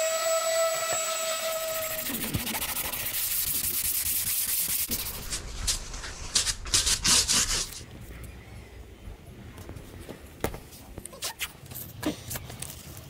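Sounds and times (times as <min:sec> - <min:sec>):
electric orbital sander: 0:00.0 - 0:04.0
hand sanding strokes: 0:00.3 - 0:07.8.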